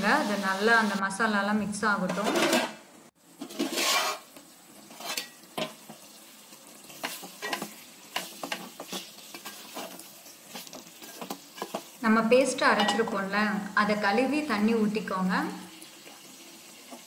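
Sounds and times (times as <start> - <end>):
food sizzling in a pot: 0.0 - 17.0
spatula scraping pot: 3.4 - 6.0, 6.8 - 12.0.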